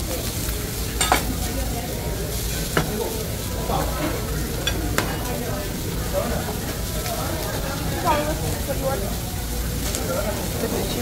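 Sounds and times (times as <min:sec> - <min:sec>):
food sizzling on griddle: 0:00.0 - 0:11.0.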